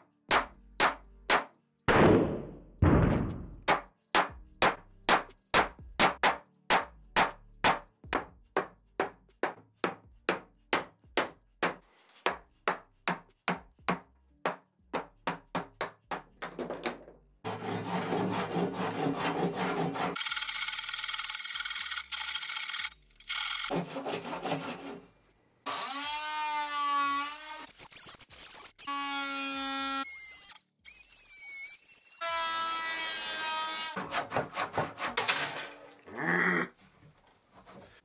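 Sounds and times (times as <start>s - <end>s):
mallet striking wood chisel: 3.7s - 16.7s
hand saw cutting wood: 17.4s - 20.2s, 23.7s - 25.1s, 32.4s - 36.0s.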